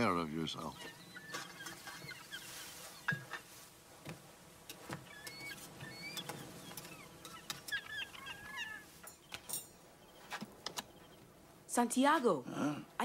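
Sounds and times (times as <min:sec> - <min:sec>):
birds chirping: 0:00.0 - 0:11.7.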